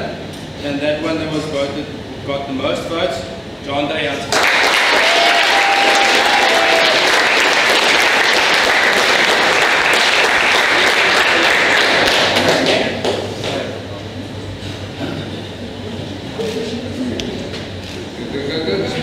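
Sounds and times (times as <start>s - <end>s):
audience clapping: 4.3s - 13.6s.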